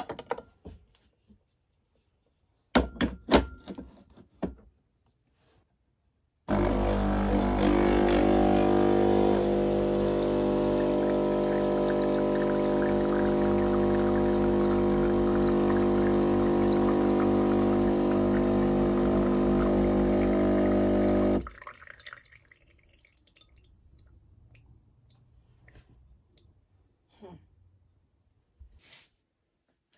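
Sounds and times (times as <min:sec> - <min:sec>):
espresso machine pump buzzing: 0:06.5 - 0:21.5
liquid trickling and dripping: 0:21.4 - 0:25.4.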